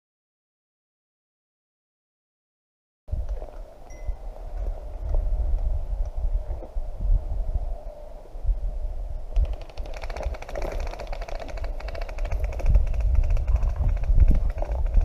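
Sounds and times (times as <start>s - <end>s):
fast even rattle of clicks: 9.4s - 15.0s.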